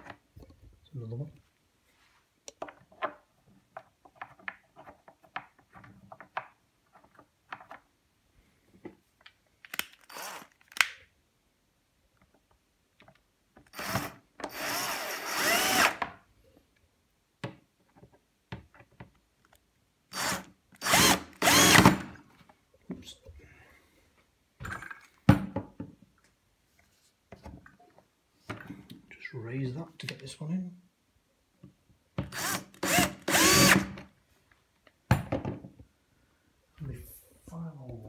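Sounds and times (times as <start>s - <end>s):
cordless drill running: 10.1s - 10.5s, 13.7s - 16.0s, 20.1s - 22.1s, 32.3s - 34.0s.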